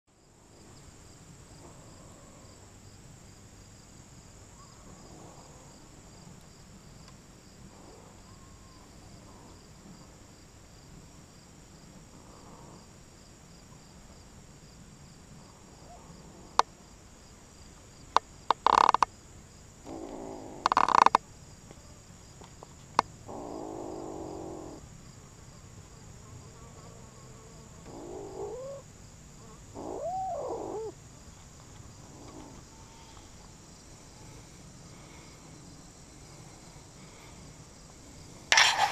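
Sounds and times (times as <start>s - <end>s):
steady high hiss: 0.2s - 38.9s.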